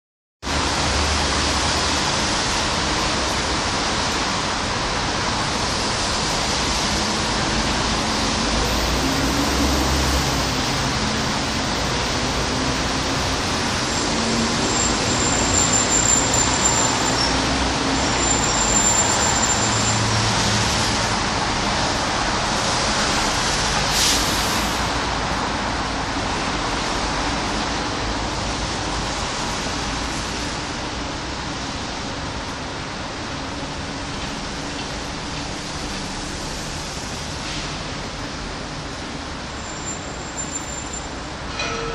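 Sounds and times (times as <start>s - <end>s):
rain and wet tyres hissing: 0.5s - 41.3s
passing vehicle engines rumbling: 0.5s - 41.9s
brief sharp hiss: 23.9s - 24.9s.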